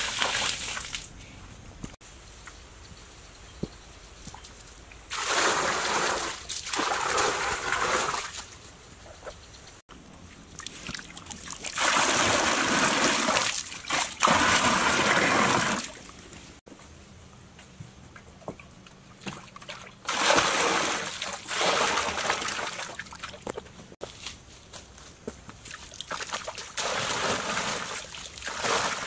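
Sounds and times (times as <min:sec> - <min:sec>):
water splashing from clay pots: 0:00.0 - 0:01.1, 0:05.1 - 0:08.5, 0:10.4 - 0:16.2, 0:19.2 - 0:23.6, 0:25.6 - 0:29.0.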